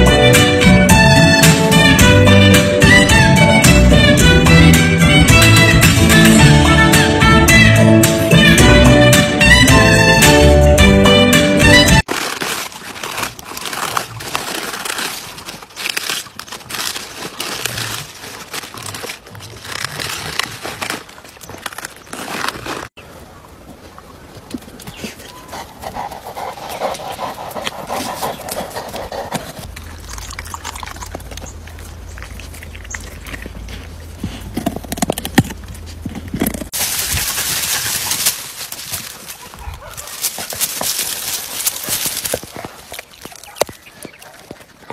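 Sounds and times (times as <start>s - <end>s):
dog crunching vegetables: 12.0s - 23.0s, 25.3s - 44.9s.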